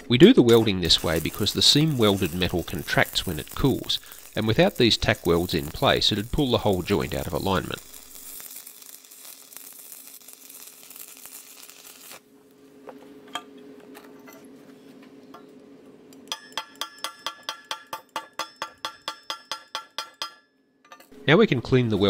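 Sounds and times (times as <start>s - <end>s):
low steady hum: 0.0s - 8.4s
welding arc crackling and sizzling: 0.0s - 12.3s.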